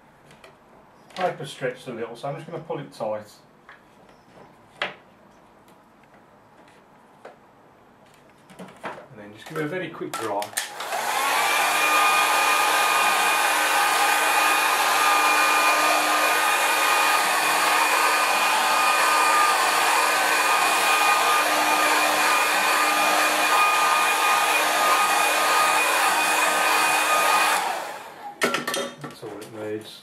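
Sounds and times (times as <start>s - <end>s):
hair dryer blowing: 10.5s - 28.4s.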